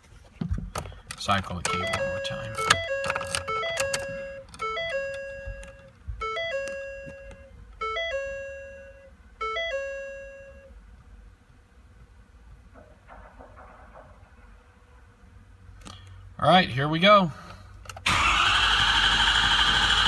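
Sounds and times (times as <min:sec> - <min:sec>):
vehicle warning chime: 0:01.4 - 0:10.8.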